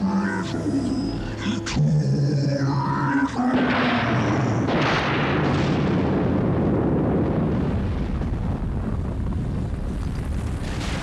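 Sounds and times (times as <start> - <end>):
rumbling storm wind: 3.3 - 11.0.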